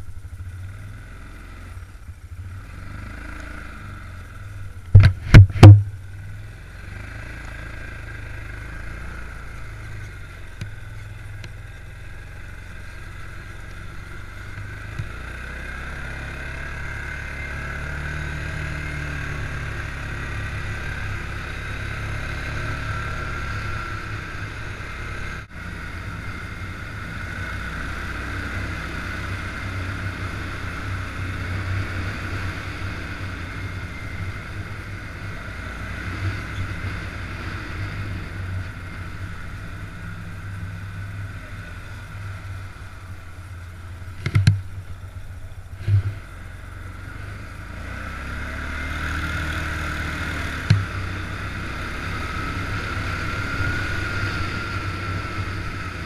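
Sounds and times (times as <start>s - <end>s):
quad bike engine running: 0.0s - 56.0s
sharp knock: 4.9s - 6.0s.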